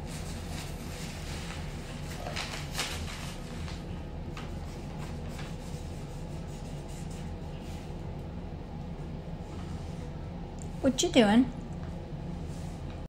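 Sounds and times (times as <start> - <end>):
paper rustling: 0.0 - 6.0
steady low hum: 0.0 - 13.0
marker scratching on paper: 4.6 - 7.9.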